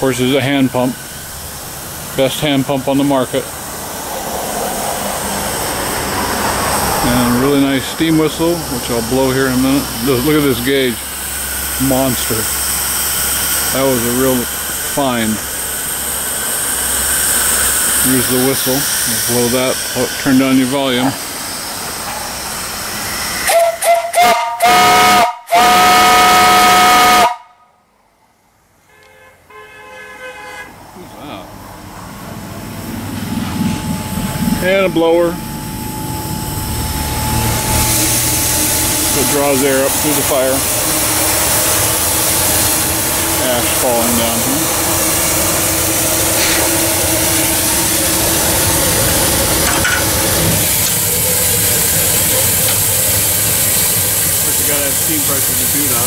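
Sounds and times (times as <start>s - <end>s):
steam hiss: 0.0s - 27.4s, 32.7s - 56.0s
steam whistle blowing: 22.9s - 27.8s, 28.8s - 30.8s, 35.2s - 56.0s.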